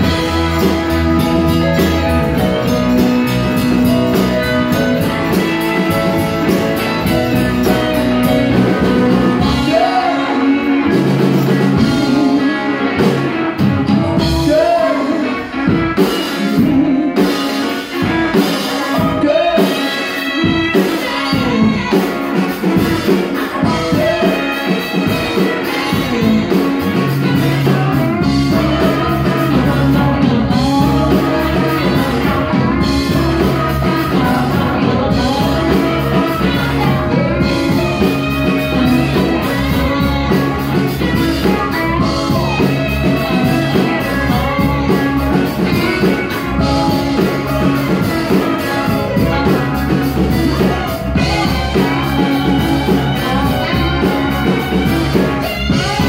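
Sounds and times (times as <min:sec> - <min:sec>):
bass: 0:00.0 - 0:56.0
drums: 0:00.0 - 0:56.0
electric guitars: 0:00.0 - 0:56.0
keyboards: 0:00.0 - 0:56.0
man singing: 0:00.0 - 0:56.0
woman singing: 0:16.4 - 0:56.0.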